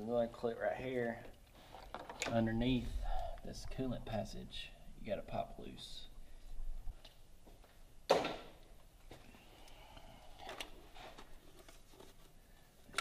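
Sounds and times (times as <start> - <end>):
rustling: 10.3 - 13.0.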